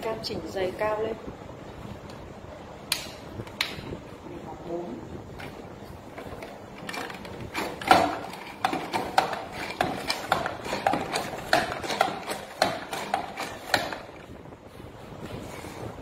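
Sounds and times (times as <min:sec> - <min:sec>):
fruit slicer clacking: 0:06.2 - 0:14.3.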